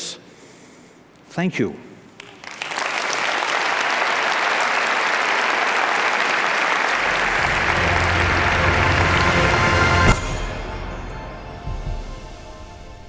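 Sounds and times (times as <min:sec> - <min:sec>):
audience applauding: 0:02.2 - 0:10.2
low music: 0:07.0 - 0:13.0.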